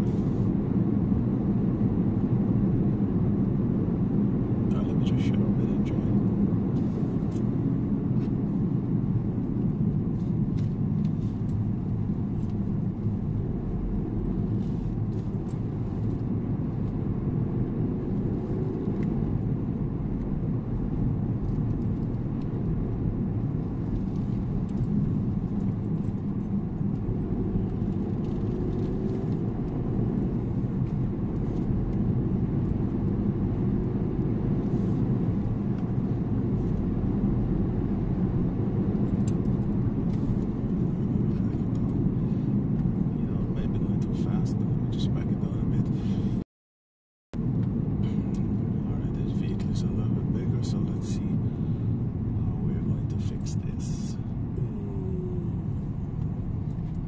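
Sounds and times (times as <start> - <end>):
car driving on gravel road: 0.0 - 46.4, 47.4 - 57.0.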